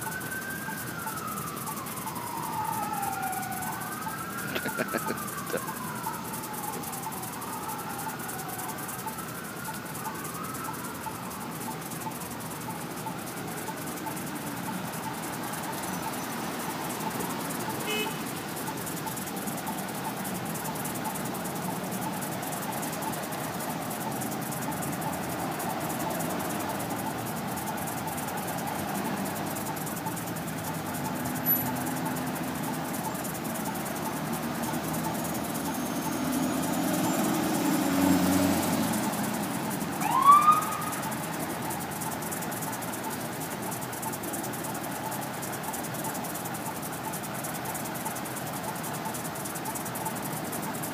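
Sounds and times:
car engines and tyres on wet street: 0.0s - 50.9s
vehicle horns: 17.8s - 18.4s.

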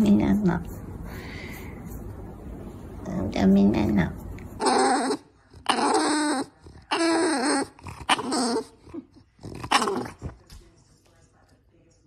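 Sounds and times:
dog vocalizing: 4.6s - 10.4s.

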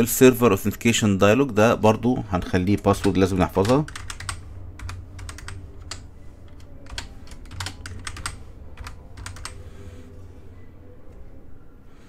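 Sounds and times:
keyboard typing clicks: 3.0s - 9.6s.

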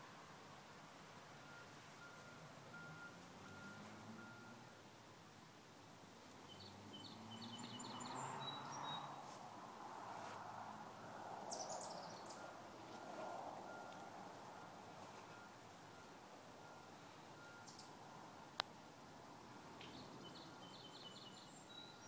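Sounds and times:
outdoor background hiss: 0.0s - 22.0s
distant reversing beeps: 1.4s - 4.9s, 10.9s - 18.1s, 20.2s - 22.0s
birds chirping: 6.2s - 9.3s, 11.0s - 12.9s, 13.7s - 18.0s, 19.8s - 22.0s.

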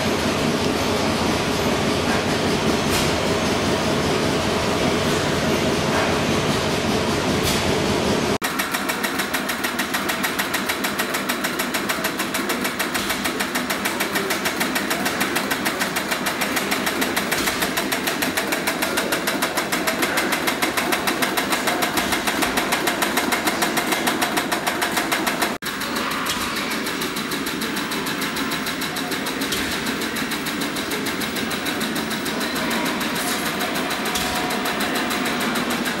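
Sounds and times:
large diesel engine running: 0.0s - 36.0s
small engine clattering: 8.4s - 36.0s.

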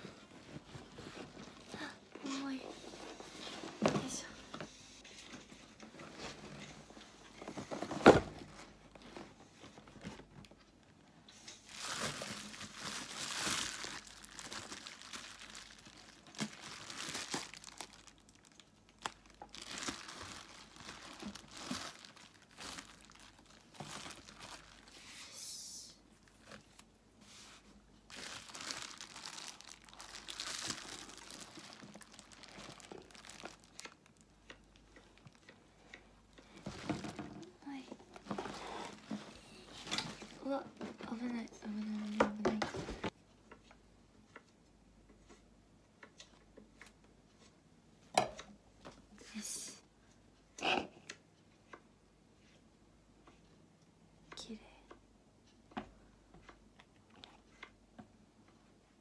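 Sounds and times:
bubble wrap crinkling: 11.4s - 25.4s, 26.1s - 35.5s.

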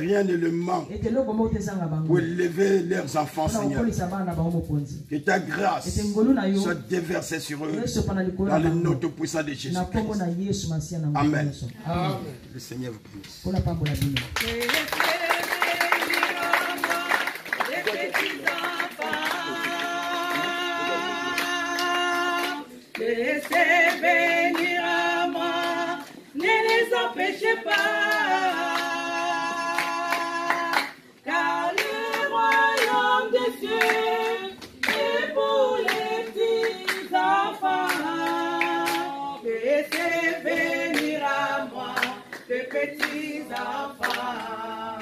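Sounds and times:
people singing worship song: 0.0s - 1.2s, 2.1s - 4.0s, 14.4s - 45.0s
hand clapping: 13.8s - 20.6s, 21.4s - 24.7s, 34.6s - 35.2s, 35.8s - 37.1s, 37.8s - 39.1s, 40.9s - 41.2s, 41.9s - 44.3s.

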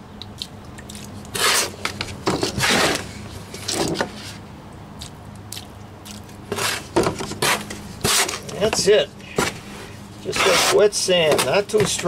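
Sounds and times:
trowel scraping mortar: 1.3s - 1.8s, 2.4s - 3.0s, 6.5s - 8.8s, 10.2s - 12.0s.

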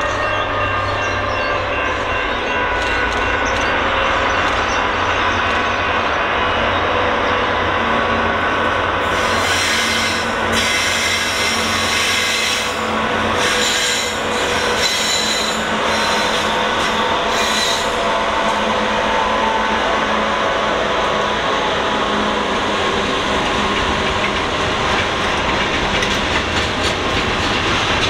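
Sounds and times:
wheels squealing on rail: 0.0s - 22.4s
freight train rumble: 0.0s - 28.0s.

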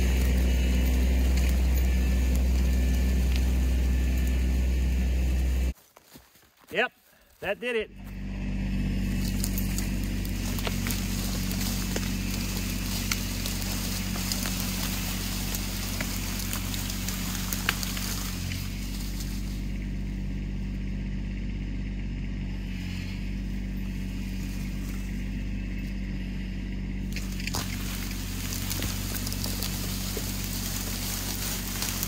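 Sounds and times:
tractor diesel engine running: 0.0s - 6.2s, 7.5s - 32.0s.

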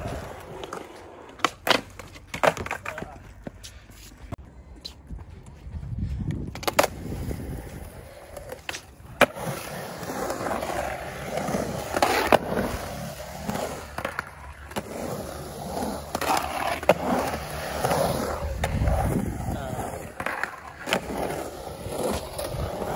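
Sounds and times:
skateboard clacks: 0.0s - 3.6s
skateboard wheels rolling on concrete: 0.0s - 22.9s.

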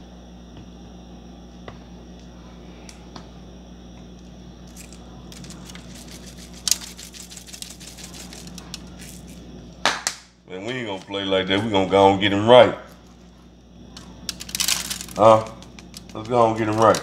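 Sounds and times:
steady low hum: 0.0s - 17.0s
seasoning sprinkling ticks: 4.7s - 9.8s, 13.0s - 17.0s.

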